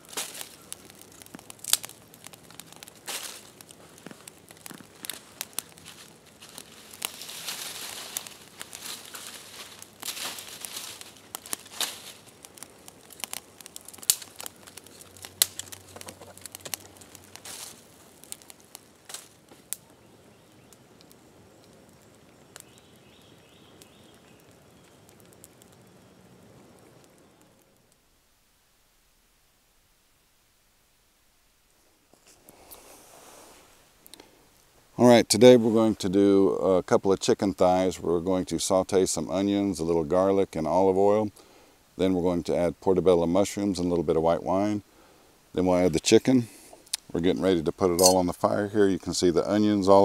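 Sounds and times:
dry leaves and sticks rustling: 0.0 - 26.1
fire crackling and popping: 0.0 - 29.6, 31.5 - 50.0.

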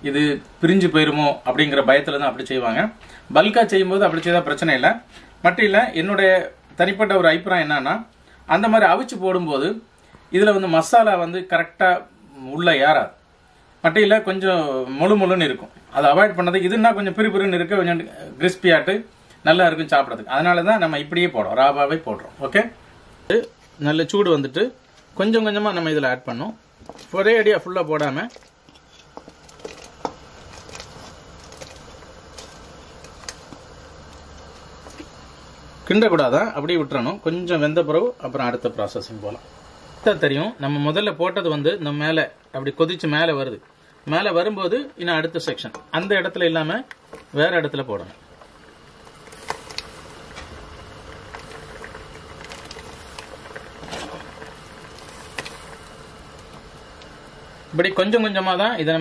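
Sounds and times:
low steady hum: 0.0 - 59.0
liquid bubbling in a pot: 26.4 - 35.9, 41.8 - 57.8.

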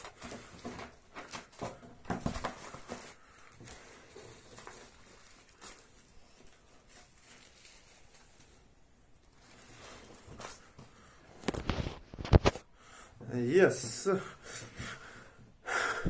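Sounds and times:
faint rustling handling noise: 0.0 - 15.0.

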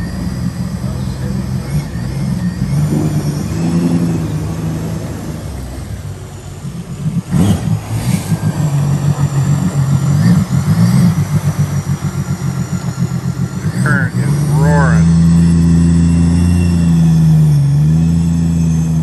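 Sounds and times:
boat engine running: 10.6 - 16.2.

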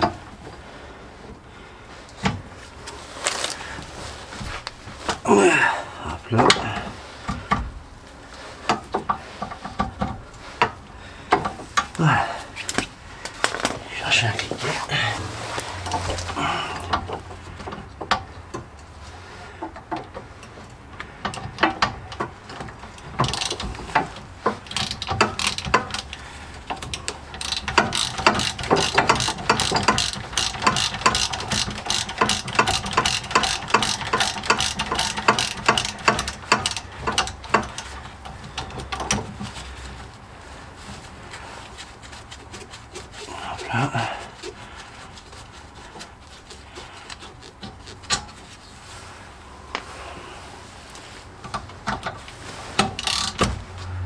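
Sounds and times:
socket ratchet clicking: 24.6 - 26.2, 26.8 - 38.0, 52.9 - 53.5.

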